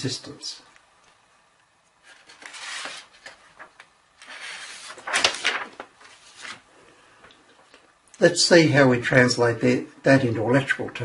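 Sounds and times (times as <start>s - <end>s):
paper sliding and rustling: 2.0s - 6.7s.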